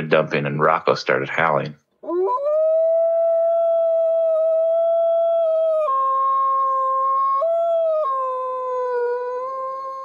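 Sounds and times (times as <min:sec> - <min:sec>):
wolf howling: 0:02.0 - 0:10.0.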